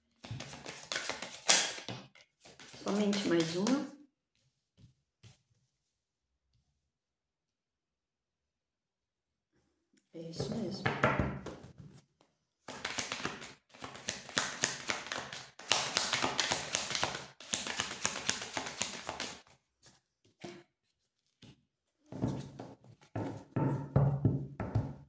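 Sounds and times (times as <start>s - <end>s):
cards being shuffled: 0.2s - 3.9s, 12.7s - 20.4s.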